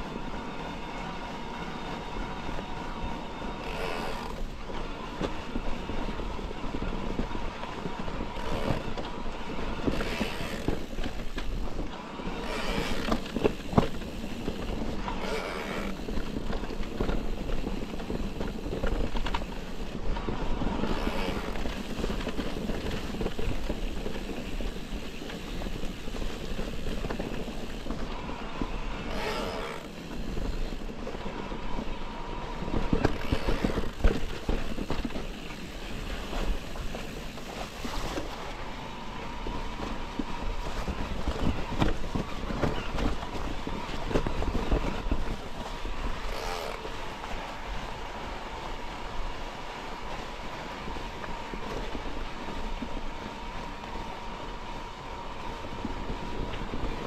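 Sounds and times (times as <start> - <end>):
faint steady whine: 0.0 - 57.0
bike rattling and knocking: 3.4 - 47.9.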